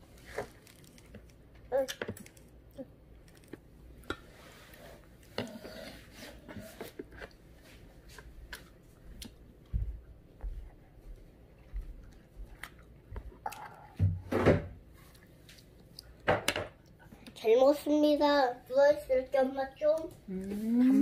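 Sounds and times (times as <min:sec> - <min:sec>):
toddler chewing: 0:11.5 - 0:14.0.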